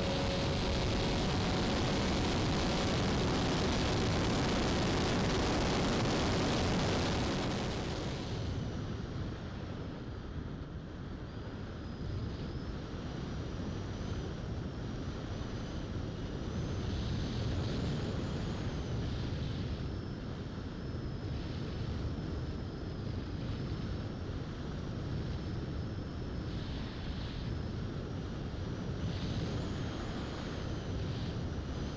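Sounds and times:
high electric motor whine: 0.0s - 8.8s
wind rushing on microphone: 0.0s - 20.4s, 22.9s - 31.9s.

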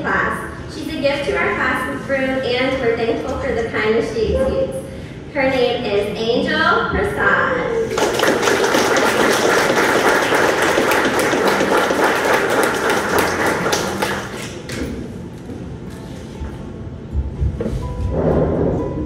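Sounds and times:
audience clapping: 7.9s - 15.1s.

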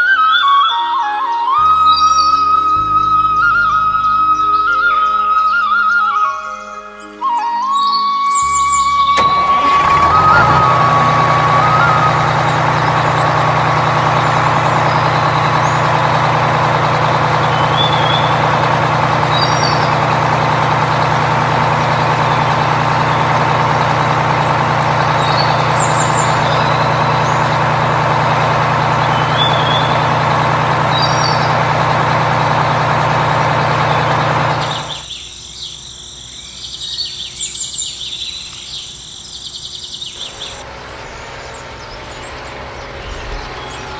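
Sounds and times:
birds chirping: 0.0s - 43.9s
truck engine running: 8.4s - 35.1s, 39.6s - 43.9s.

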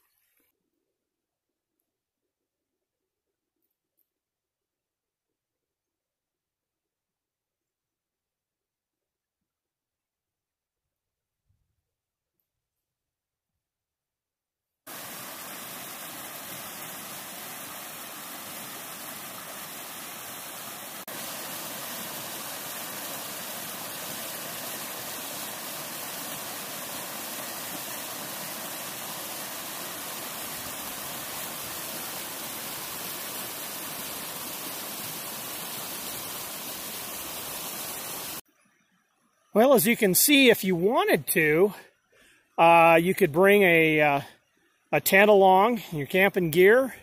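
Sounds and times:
water rushing over rocks: 14.9s - 38.4s.

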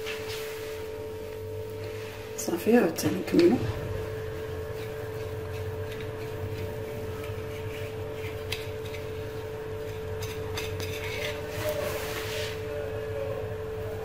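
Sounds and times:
steady low hum: 0.0s - 14.0s
knife cutting dough: 4.6s - 12.6s
blade scraping on stone: 4.8s - 12.6s.

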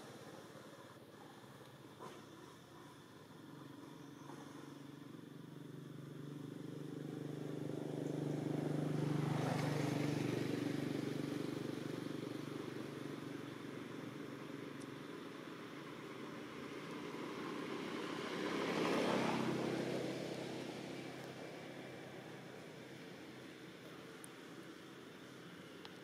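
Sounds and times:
vehicle engine passing by: 4.0s - 13.6s, 15.8s - 23.7s.

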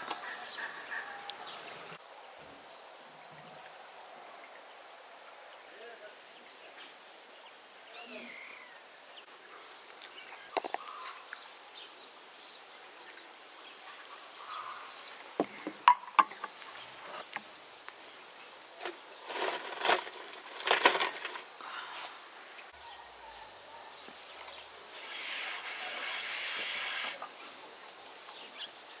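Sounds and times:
rustling and scraping: 15.4s - 17.6s, 18.8s - 22.2s, 24.4s - 27.3s.

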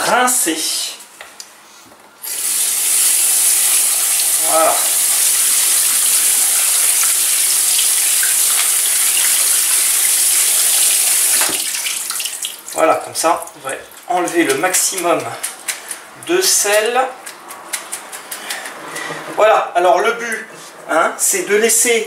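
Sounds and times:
tap water running: 2.2s - 15.3s.

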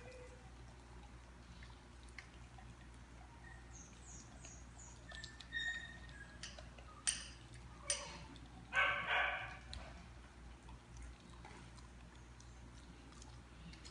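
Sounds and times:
dogs eating kibble: 0.0s - 13.9s.

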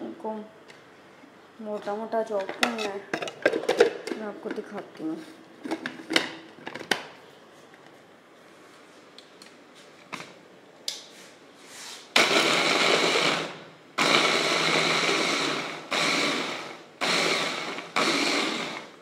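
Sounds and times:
food chopper motor whirring: 12.2s - 19.0s.

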